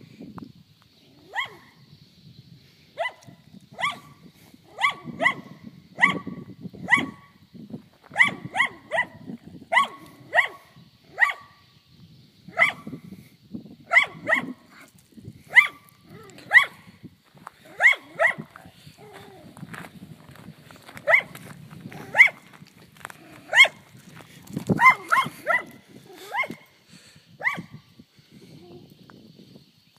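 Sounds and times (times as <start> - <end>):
small dog barking: 1.3 - 1.7, 3.0 - 6.3, 6.9 - 7.2, 8.1 - 11.5, 12.5 - 12.8, 13.9 - 14.6, 15.5 - 16.8, 17.7 - 19.4, 21.0 - 21.3, 22.1 - 22.4, 23.5 - 23.8, 24.8 - 26.6, 27.4 - 27.7.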